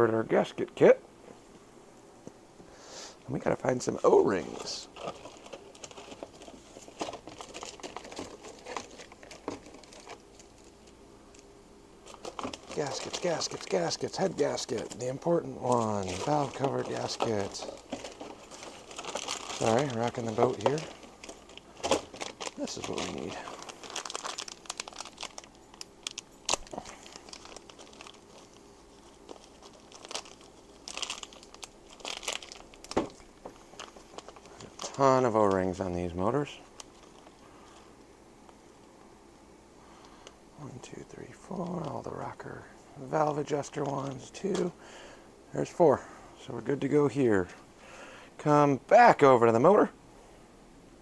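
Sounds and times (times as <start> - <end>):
paper crinkling and rustling: 3.8 - 11.0, 12.0 - 38.0, 41.5 - 42.5, 43.2 - 44.7.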